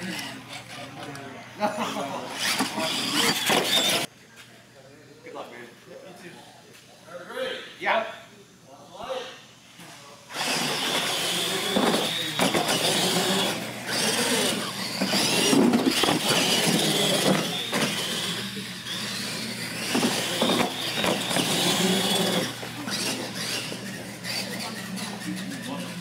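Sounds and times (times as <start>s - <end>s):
toy truck motors whining: 0.0s - 1.2s, 2.3s - 4.1s, 10.3s - 26.0s.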